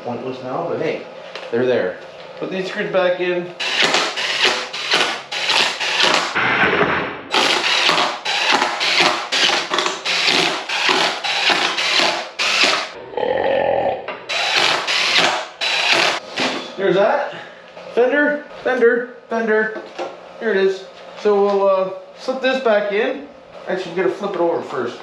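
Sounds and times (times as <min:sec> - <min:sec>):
cordless drill driving screws: 0:03.6 - 0:06.4, 0:07.3 - 0:12.9, 0:14.3 - 0:16.2.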